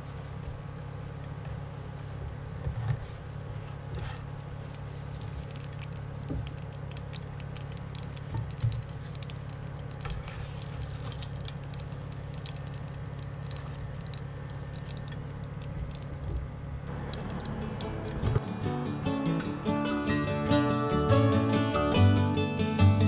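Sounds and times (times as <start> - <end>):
steady low hum: 0.0 - 23.0
hot oil crackling and popping: 0.3 - 19.1.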